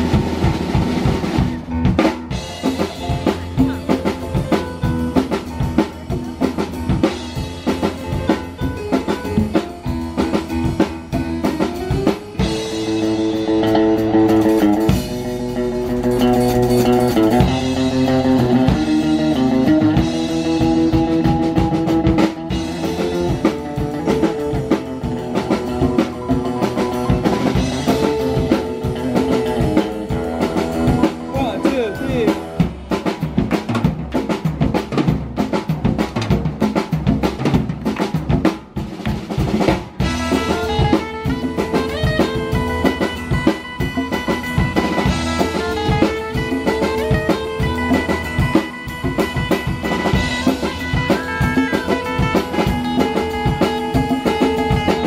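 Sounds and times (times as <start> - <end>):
live band playing: 0.0 - 55.0.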